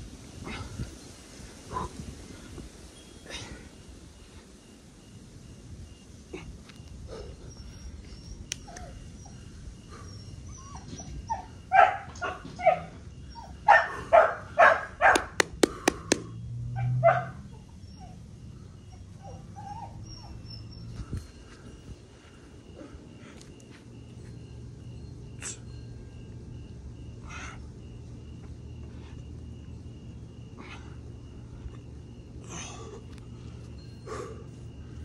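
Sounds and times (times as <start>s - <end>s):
dog barking: 11.7s - 12.9s, 13.7s - 15.4s, 16.8s - 17.4s.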